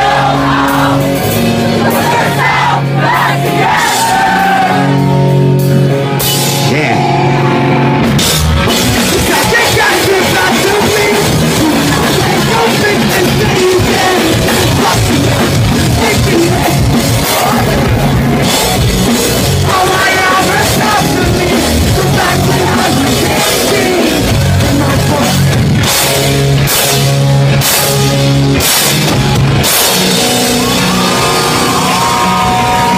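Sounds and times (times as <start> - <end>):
distorted guitars: 0.0 - 32.9
drum kit: 0.0 - 32.9
shouted vocals: 1.7 - 5.0, 19.6 - 24.0.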